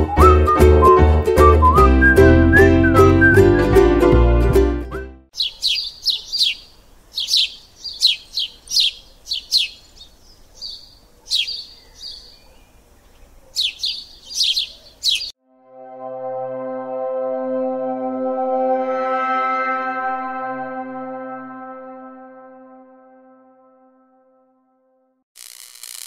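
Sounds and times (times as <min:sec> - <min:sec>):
plucked string tune: 0:00.0 - 0:05.2
birds chirping: 0:05.3 - 0:15.4
ambient synth chord: 0:15.4 - 0:25.1.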